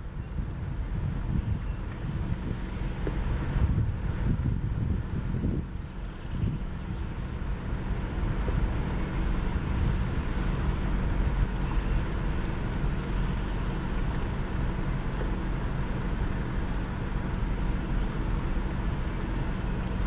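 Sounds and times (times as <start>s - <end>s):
wind buffeting microphone: 0.0s - 16.5s
hiss of forest air: 8.0s - 20.0s.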